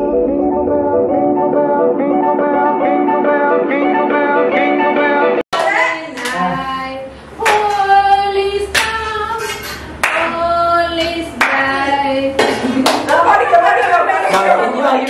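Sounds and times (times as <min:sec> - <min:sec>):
hand claps: 0:07.4 - 0:07.9, 0:10.0 - 0:10.4, 0:12.4 - 0:13.3.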